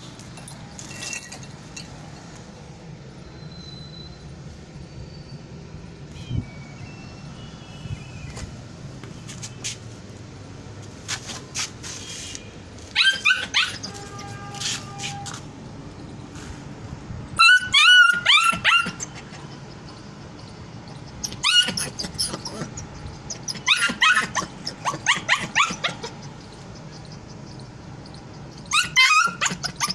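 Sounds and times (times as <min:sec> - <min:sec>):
puppy yipping and barking: 0:12.9 - 0:14.2, 0:17.4 - 0:19.4, 0:21.2 - 0:26.4, 0:28.6 - 0:29.9.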